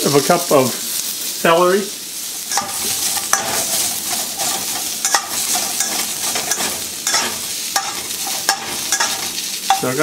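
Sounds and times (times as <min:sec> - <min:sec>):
vegetables sizzling in hot oil: 0:00.0 - 0:10.0
metal spatula scraping wok: 0:02.4 - 0:10.0.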